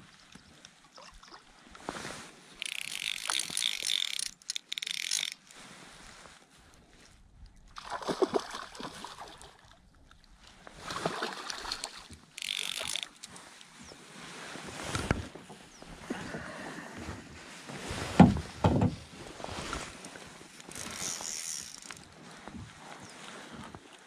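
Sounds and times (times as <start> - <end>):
reel buzz: 2.6 - 5.5, 11.7 - 13.6, 20.6 - 22.1
fishing reel winding: 2.6 - 5.6, 11.6 - 13.6, 20.6 - 22.1
fish splashing: 7.8 - 9.7, 10.8 - 13.4.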